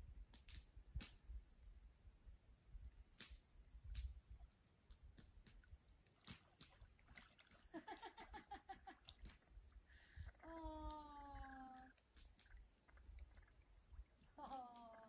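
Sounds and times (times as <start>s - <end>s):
faint clicks: 4.8s - 15.0s.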